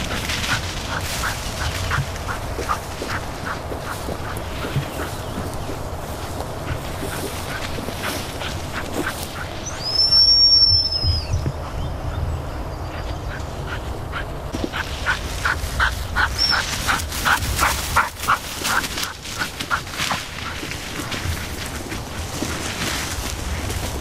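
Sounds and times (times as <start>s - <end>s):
dog panting: 0.0s - 9.8s, 13.0s - 23.1s.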